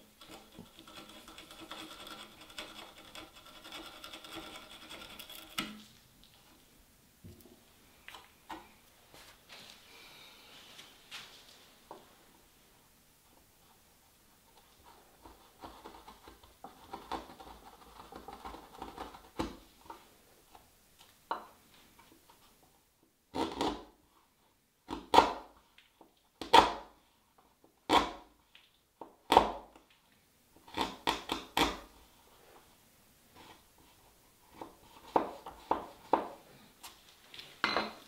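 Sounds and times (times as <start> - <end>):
chisel paring scrapes on wood: 0.2 - 5.9.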